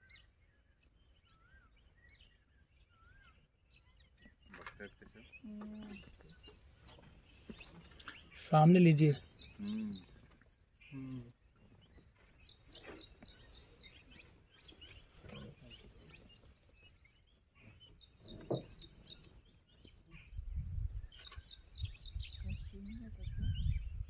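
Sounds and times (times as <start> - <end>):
bird chirping rapidly: 5.2 - 11.0, 11.6 - 24.0.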